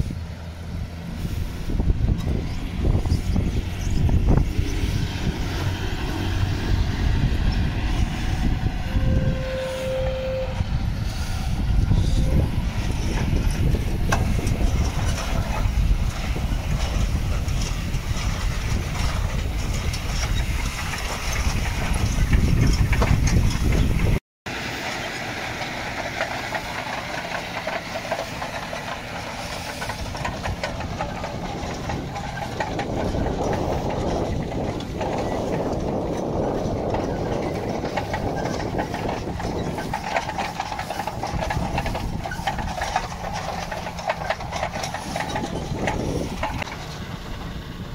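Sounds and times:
wind rumble on microphone: 0.0s - 24.2s, 26.5s - 47.9s
tractor engine running: 0.0s - 47.9s.

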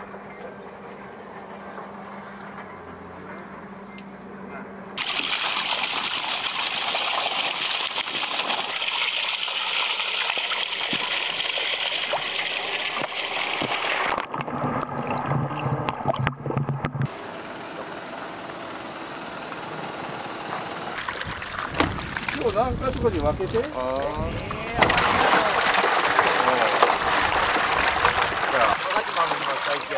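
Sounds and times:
water gushing onto gravel: 5.0s - 14.2s, 21.0s - 29.9s
steady water noise: 5.0s - 29.9s
muffled underwater sound: 22.3s - 27.2s.

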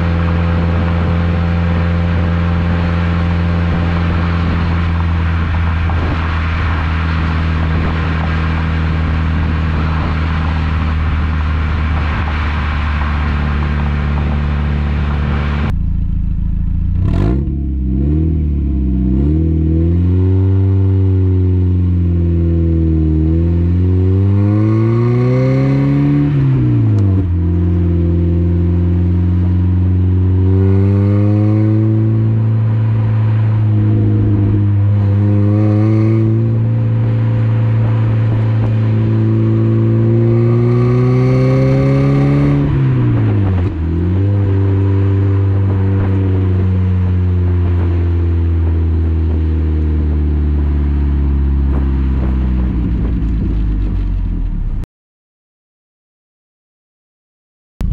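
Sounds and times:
car engine and exhaust accelerating: 0.0s - 54.8s.

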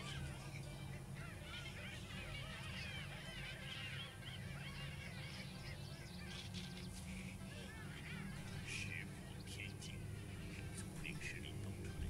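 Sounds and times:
monkeys chattering and squealing: 0.0s - 11.6s.

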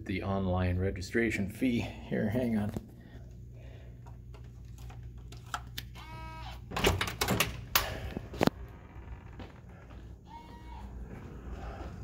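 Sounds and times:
door handle and latch clicks: 6.7s - 7.9s.

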